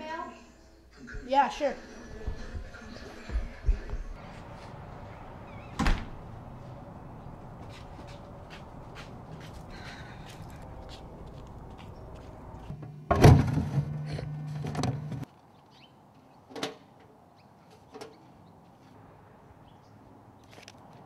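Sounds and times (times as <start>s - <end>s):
mailbox door clanking: 13.1s - 14.0s.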